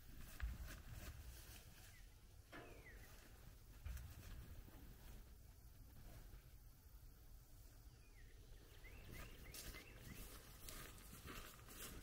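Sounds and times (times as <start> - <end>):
faint bird chirps: 1.8 - 3.4, 7.7 - 10.7.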